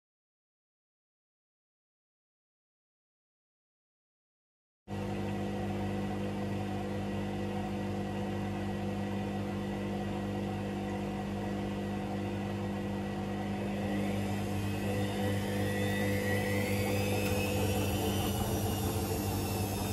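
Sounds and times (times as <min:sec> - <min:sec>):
laundry machine motor humming: 0:04.9 - 0:19.9
machine whine: 0:12.2 - 0:19.9.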